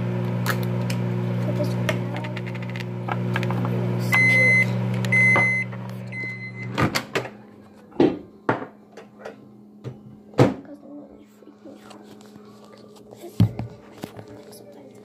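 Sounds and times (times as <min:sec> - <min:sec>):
microwave oven humming: 0:00.0 - 0:15.0
short beeps: 0:04.2 - 0:06.8.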